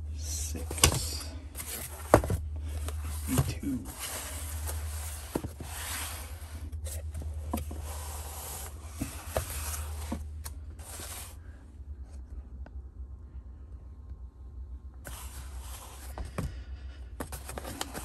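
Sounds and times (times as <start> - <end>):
low hum: 0.0 - 17.3
cardboard boxes scraping on table: 1.6 - 11.4.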